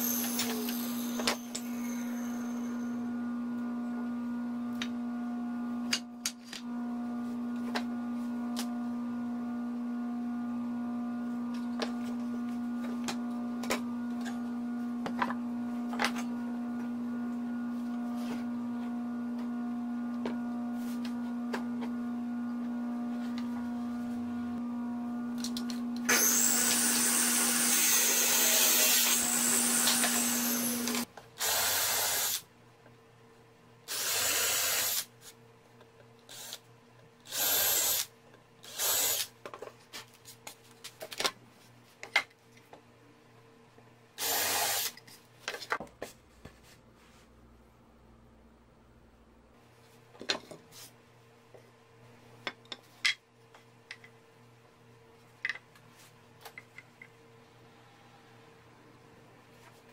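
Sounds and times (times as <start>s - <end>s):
cordless drill running: 0.0s - 3.0s, 25.4s - 32.4s, 33.9s - 35.1s, 36.3s - 36.6s, 37.3s - 39.3s, 44.2s - 45.0s
table saw humming: 0.0s - 32.4s
saw blade cutting wood: 26.1s - 31.1s.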